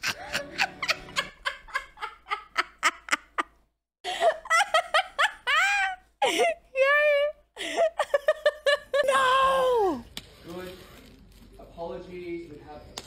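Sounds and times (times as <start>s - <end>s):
woman laughing: 0.0s - 3.5s, 4.1s - 10.0s.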